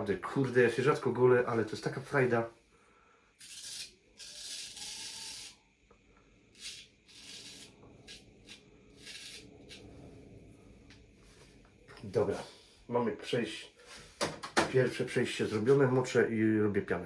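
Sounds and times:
straight razor scraping stubble: 3.4 - 5.6, 6.5 - 9.9.

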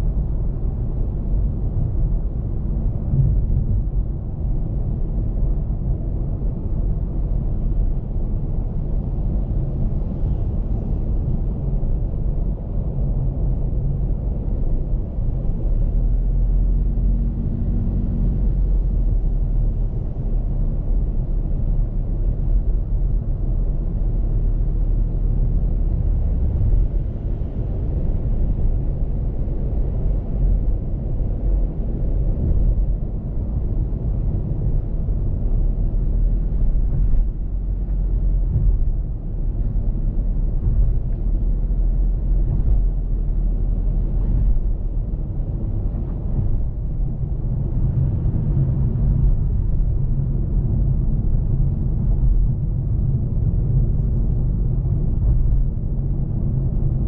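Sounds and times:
car interior road rumble: 0.0 - 57.0.

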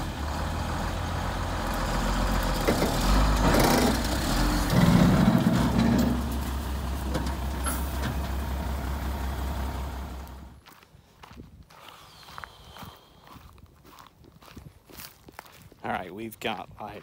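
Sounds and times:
dump truck engine running: 0.0 - 10.6.

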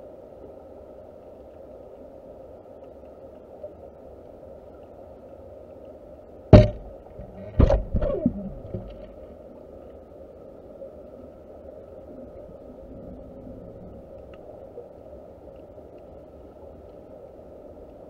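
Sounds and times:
muffled underwater hum: 0.0 - 18.0
sharp underwater knocks: 6.5 - 9.2.

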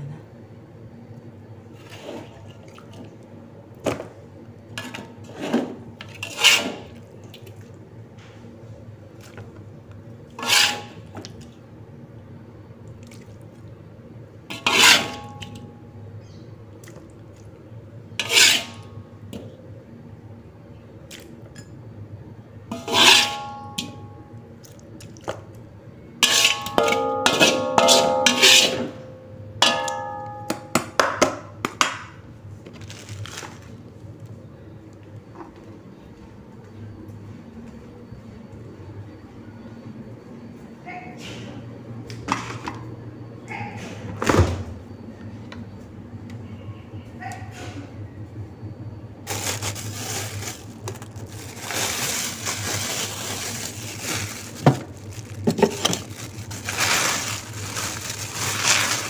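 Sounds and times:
utensil scraping a wok: 4.8 - 7.0, 10.4 - 11.0, 14.5 - 15.5, 18.2 - 18.9, 22.7 - 23.8, 26.2 - 29.0
metallic clanks with ringing: 26.3 - 30.8.

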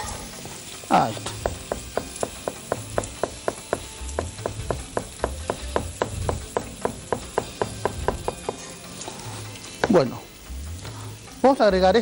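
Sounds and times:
knife chopping on cutting board: 1.2 - 8.7.

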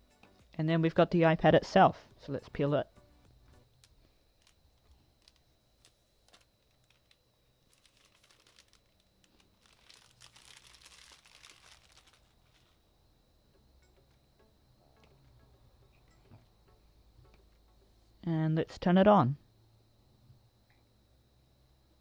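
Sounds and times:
plastic film crinkling: 3.7 - 12.8.

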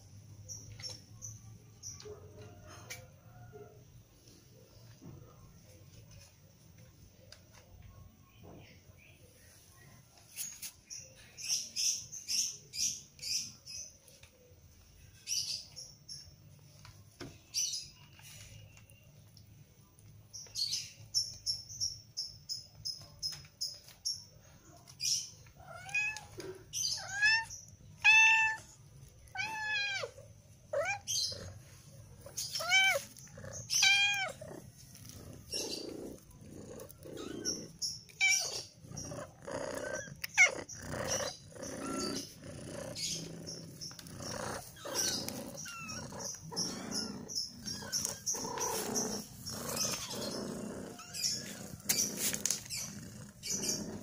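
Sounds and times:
kittens mewing: 25.5 - 54.0.

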